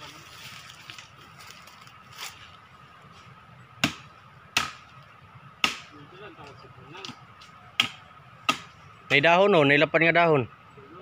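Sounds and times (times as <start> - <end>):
blade chopping into tree trunk: 3.8 - 4.8, 5.6 - 5.9.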